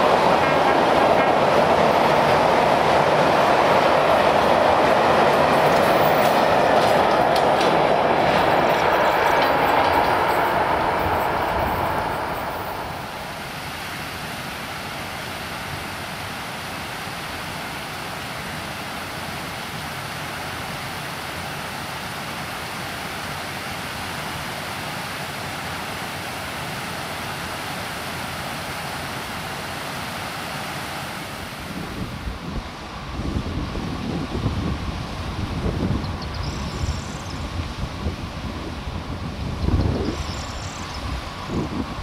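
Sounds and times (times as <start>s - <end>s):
steady rushing noise: 0.0s - 15.8s
freight wagons rolling: 5.4s - 12.7s.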